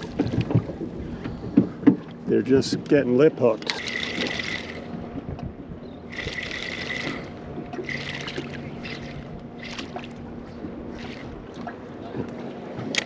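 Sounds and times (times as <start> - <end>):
spinning reel whirring: 3.6 - 5.0, 6.1 - 10.1, 10.9 - 11.4.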